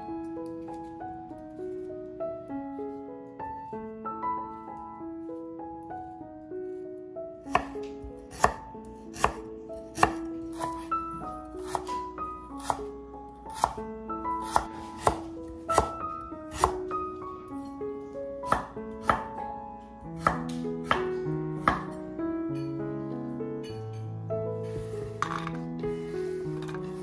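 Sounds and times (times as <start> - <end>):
soft background music: 0.0 - 27.0
knife chopping on wooden board: 7.5 - 10.9, 11.7 - 12.0, 12.6 - 12.9, 13.5 - 13.8, 14.4 - 16.8, 18.5 - 19.3, 20.2 - 21.9.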